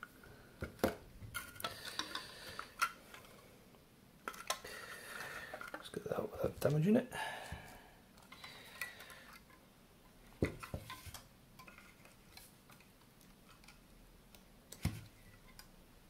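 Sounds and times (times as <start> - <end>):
plastic and metal parts clicking: 0.7 - 3.3, 4.2 - 5.9, 10.5 - 15.7.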